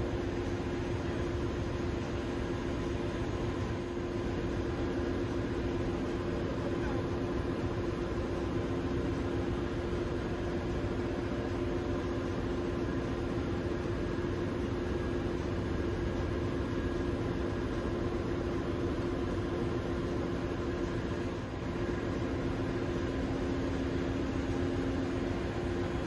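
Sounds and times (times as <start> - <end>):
engine-room machinery droning: 0.0 - 26.0.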